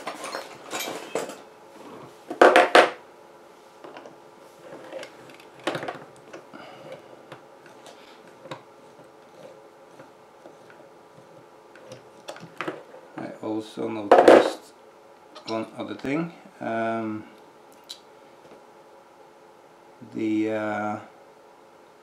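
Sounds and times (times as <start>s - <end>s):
metal tools clattering on table: 0.0s - 1.4s.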